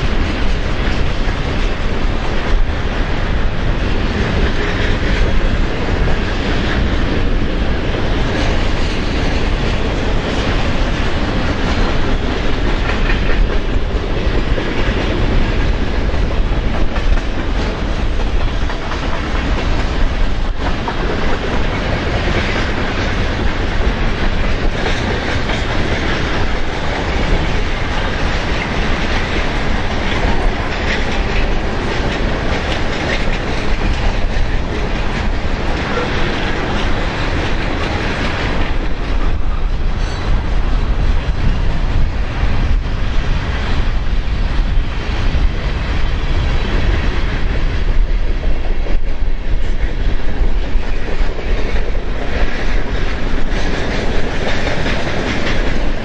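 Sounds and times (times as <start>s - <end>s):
train wheels on rails: 0.0s - 56.0s
wind buffeting microphone: 0.0s - 56.0s.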